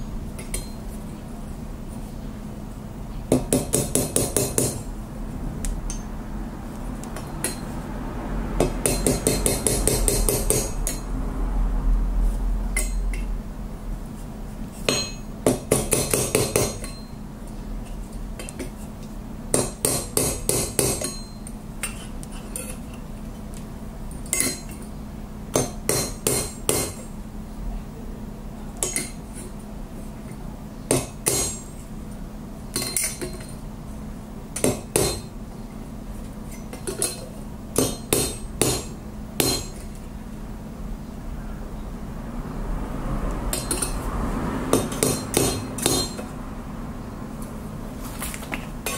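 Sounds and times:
hammer striking steel on anvil: 3.3s - 4.9s, 7.4s - 7.7s, 8.6s - 11.1s, 14.9s - 17.1s, 19.5s - 22.0s, 25.5s - 27.0s, 30.9s - 31.7s, 32.7s - 33.5s, 34.6s - 35.3s, 37.8s - 39.9s, 44.7s - 46.3s.

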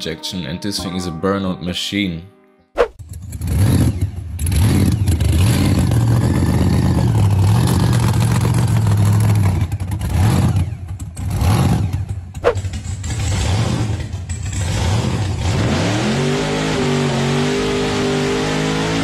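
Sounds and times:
car engine revving: 3.0s - 19.0s.

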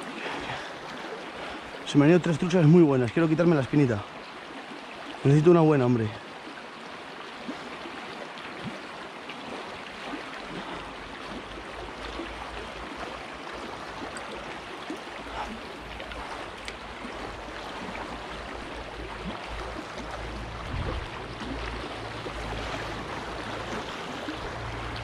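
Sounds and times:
river flowing over stones: 0.0s - 25.0s
low rumble: 20.2s - 23.6s.

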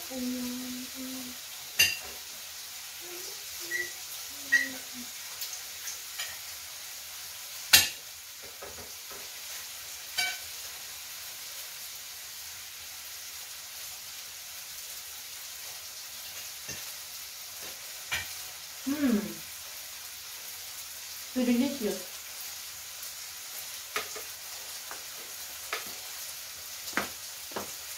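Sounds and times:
food sizzling on a grill: 0.0s - 27.9s
tongs and cutlery clinking: 1.8s - 2.2s, 6.1s - 6.5s, 10.1s - 10.5s.

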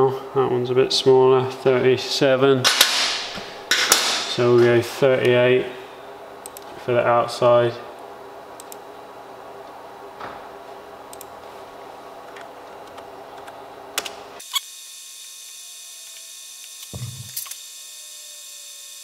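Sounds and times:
low room hum: 0.0s - 14.5s, 15.2s - 18.9s
keyboard and mouse clicks: 8.6s - 8.8s.

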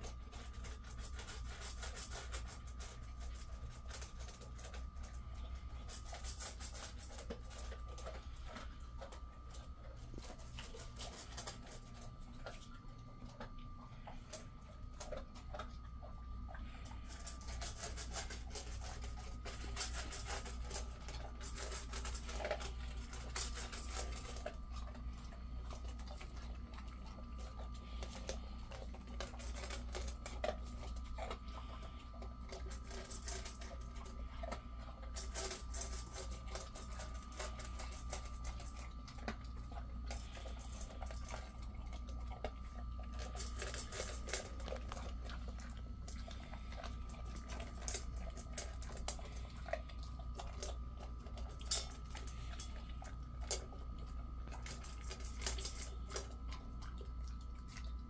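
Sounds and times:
dog crunching kibble: 0.0s - 58.0s
steady hum: 0.0s - 58.0s
kibble clicking against metal bowl: 32.4s - 58.0s.

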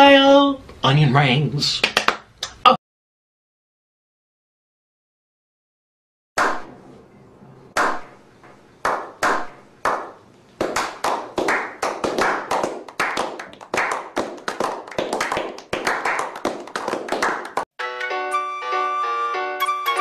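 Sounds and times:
people clapping: 1.8s - 2.6s, 8.8s - 17.7s.

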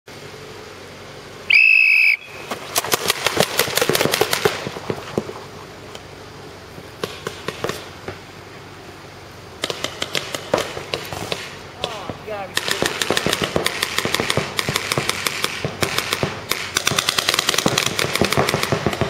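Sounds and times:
whistle blast: 1.5s - 2.5s
paintball marker shots: 9.6s - 19.0s.

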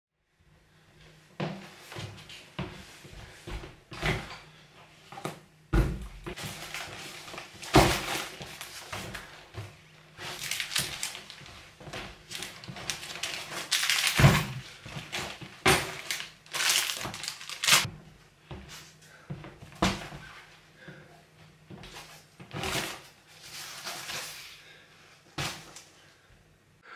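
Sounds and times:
bags dropped on wooden floor: 5.8s - 9.3s, 10.2s - 17.9s, 25.4s - 25.8s
fabric and plastic rustling: 6.3s - 17.9s.

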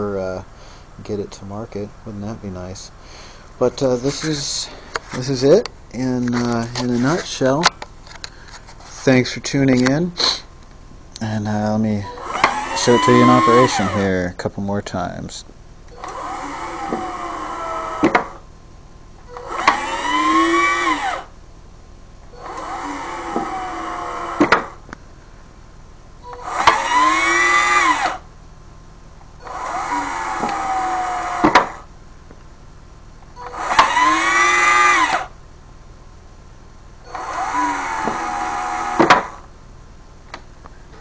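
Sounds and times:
cordless drill motor whining: 12.0s - 14.2s, 15.9s - 18.5s, 19.2s - 21.4s, 22.3s - 24.8s, 26.2s - 28.3s, 29.4s - 31.9s, 33.3s - 35.4s, 37.0s - 39.5s
sharp clicks: 29.4s - 31.8s.

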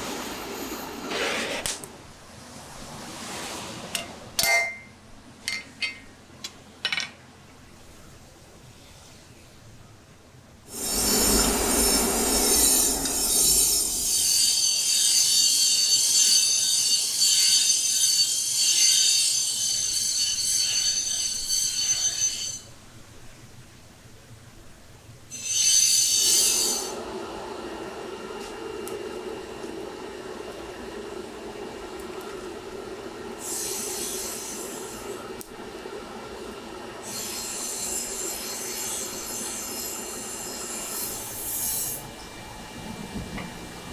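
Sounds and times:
knife grinding on power grinder: 10.7s - 22.7s.

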